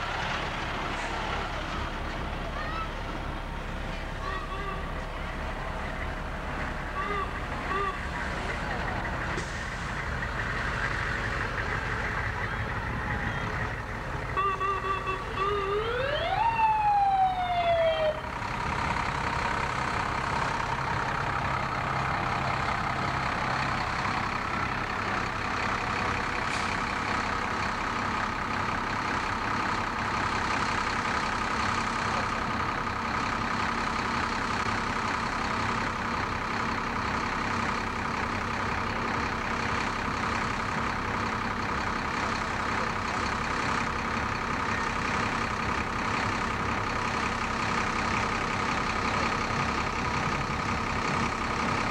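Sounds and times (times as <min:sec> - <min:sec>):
fire truck engine noise: 0:00.0 - 0:51.9
fire truck siren wail: 0:11.2 - 0:27.9.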